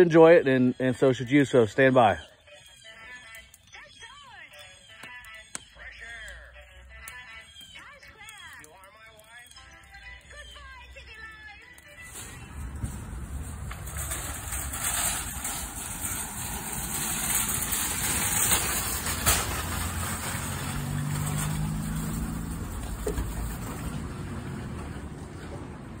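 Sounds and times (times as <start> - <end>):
parking lot traffic: 3.5 - 26.0
engine low hum: 12.1 - 26.0.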